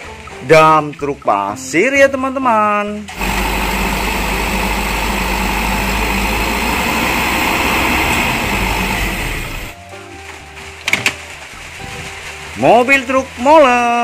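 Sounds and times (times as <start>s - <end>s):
diesel truck engine running: 3.1s - 9.8s
hydraulic tipper bed rising: 3.1s - 9.8s.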